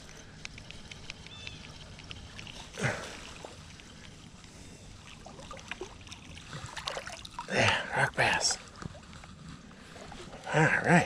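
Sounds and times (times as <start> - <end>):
small clicks: 0.0 - 2.8
creek water running: 0.0 - 11.0.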